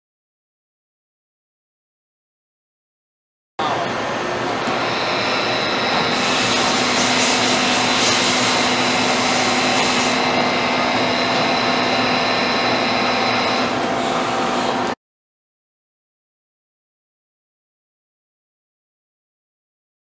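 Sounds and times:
lathe whirring with high whine: 3.6s - 15.0s
loud hiss: 6.1s - 10.2s.

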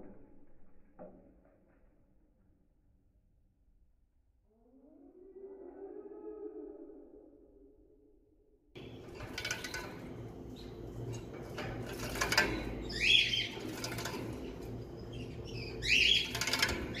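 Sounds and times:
goldfinch chirps: 12.8s - 14.0s, 14.8s - 17.0s.

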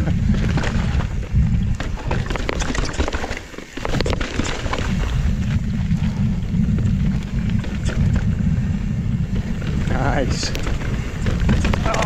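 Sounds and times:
bike tyres rumbling over rock: 0.0s - 12.0s
wind buffeting microphone: 0.0s - 12.0s
sharp clatters and knocks: 0.3s - 5.2s, 9.3s - 12.0s.

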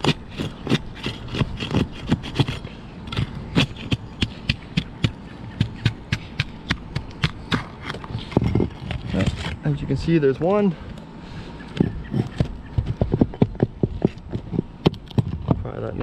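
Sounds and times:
pry bar clicking and scraping shingles: 0.0s - 9.6s.

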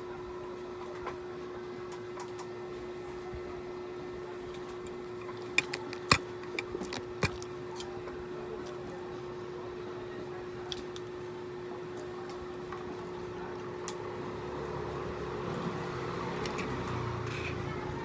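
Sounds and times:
steady low hum: 0.0s - 17.4s.

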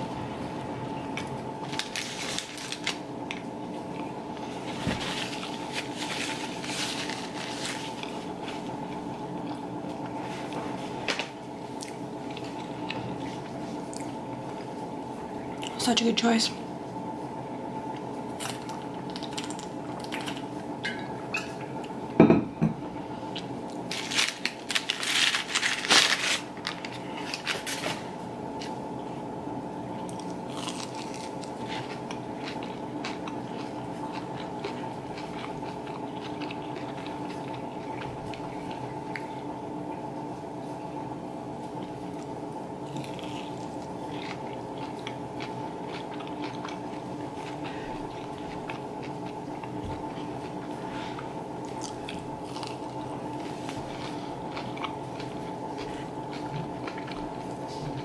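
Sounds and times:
steady low hum: 0.0s - 58.0s
chewing: 11.7s - 14.8s, 30.0s - 39.4s, 41.8s - 58.0s.

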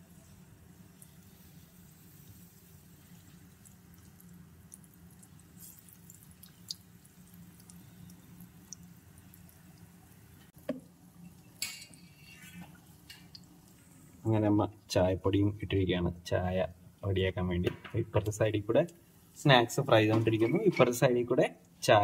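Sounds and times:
batter frying in oil: 0.0s - 15.1s
low steady hum: 0.0s - 22.0s.

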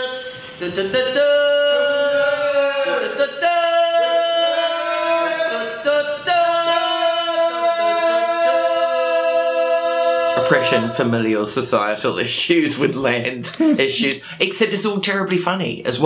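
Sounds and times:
voices singing in harmony: 0.0s - 11.4s.

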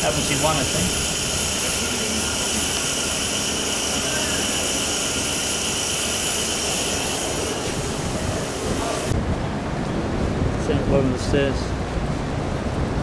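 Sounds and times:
constant hiss: 0.0s - 9.2s
mechanical drone: 0.0s - 10.4s.

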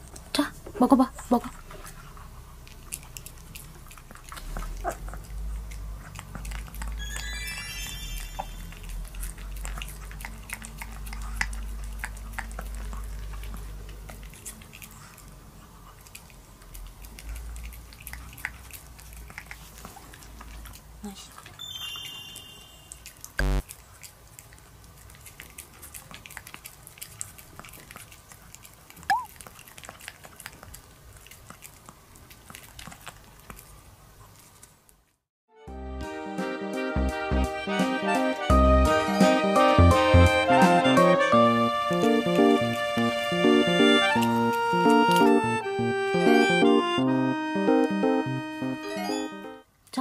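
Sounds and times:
dog licking wetly: 1.6s - 7.3s, 8.3s - 21.6s, 23.0s - 34.8s, 41.9s - 45.4s
high rising and falling tone: 7.0s - 9.0s, 23.4s - 23.6s, 38.5s - 49.6s.

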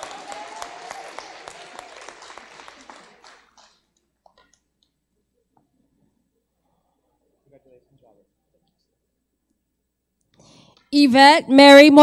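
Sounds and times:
audience applauding: 0.0s - 4.5s.

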